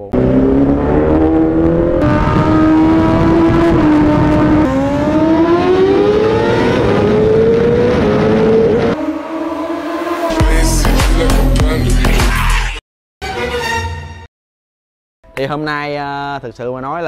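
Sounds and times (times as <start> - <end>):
motorcycle engine accelerating: 0.0 - 11.6.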